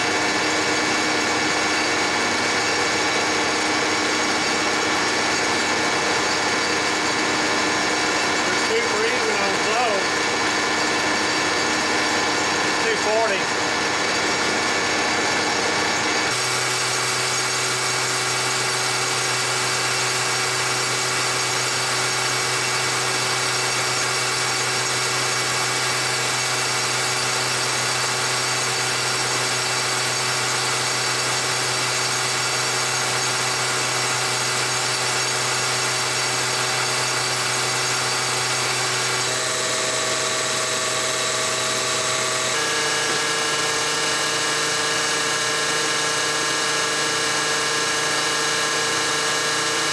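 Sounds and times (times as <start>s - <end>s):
test stand machine running: 0.0s - 49.9s.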